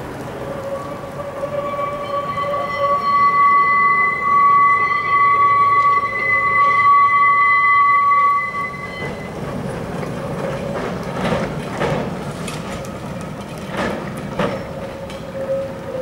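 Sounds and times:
tram rumbling: 0:00.0 - 0:16.0
wheels clacking over rails: 0:08.3 - 0:16.0.

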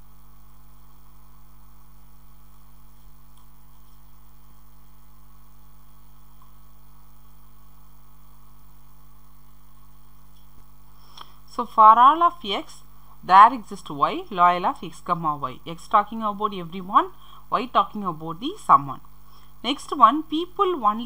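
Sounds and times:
electrical mains hum: 0:00.0 - 0:21.0
faint background hiss: 0:00.0 - 0:21.0.

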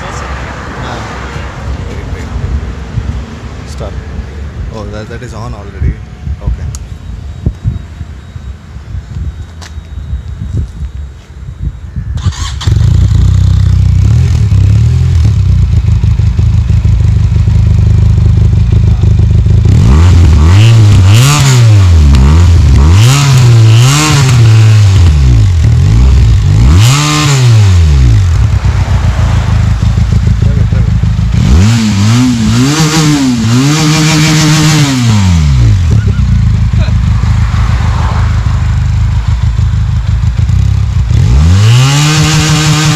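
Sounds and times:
engine throttle blips: 0:05.9 - 0:42.9
motorcycle engine idling: 0:12.9 - 0:19.7, 0:28.1 - 0:31.4, 0:35.6 - 0:37.4, 0:38.4 - 0:41.2.

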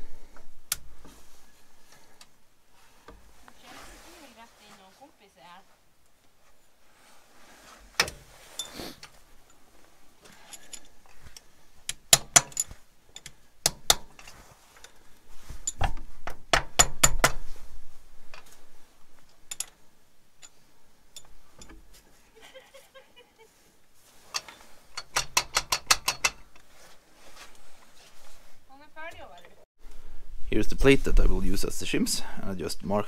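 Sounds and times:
hand tool clinking on metal: 0:08.5 - 0:15.0.

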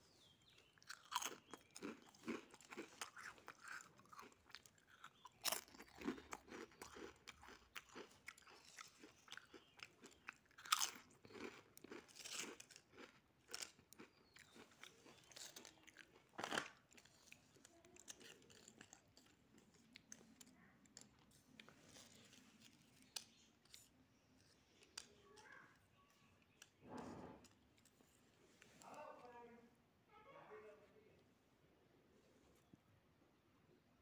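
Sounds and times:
potato chips crunching: 0:00.7 - 0:23.9.

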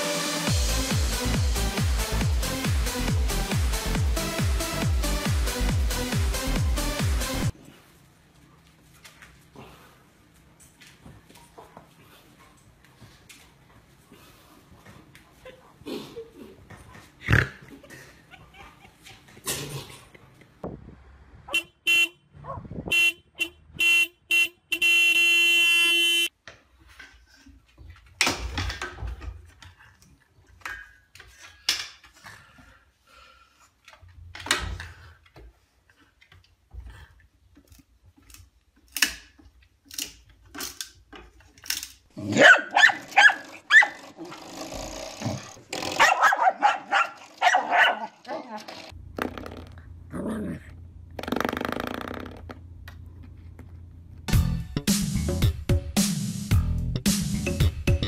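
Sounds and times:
dog barking and growling: 0:42.1 - 0:44.4, 0:45.3 - 0:48.8, 0:50.1 - 0:50.8.

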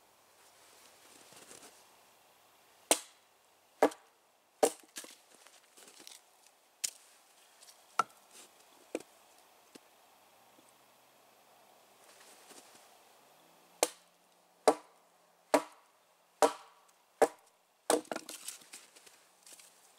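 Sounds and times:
hatchet splitting firewood: 0:02.9 - 0:03.2, 0:03.8 - 0:05.2, 0:13.8 - 0:14.0, 0:14.6 - 0:14.9, 0:15.5 - 0:15.8, 0:16.4 - 0:18.8.

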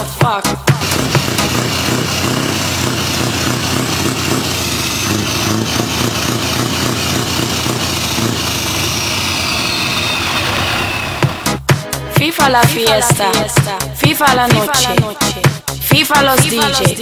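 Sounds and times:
diesel engine idling: 0:00.7 - 0:11.5
faint high whistle: 0:09.1 - 0:11.4.

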